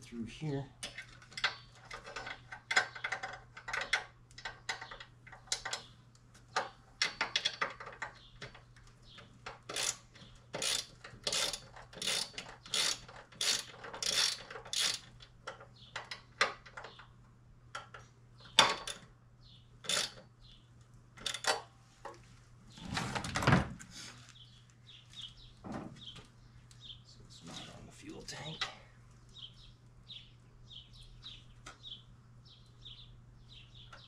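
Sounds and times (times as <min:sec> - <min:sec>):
ratchet wrench clicking: 0:09.7 - 0:15.1, 0:19.9 - 0:20.2.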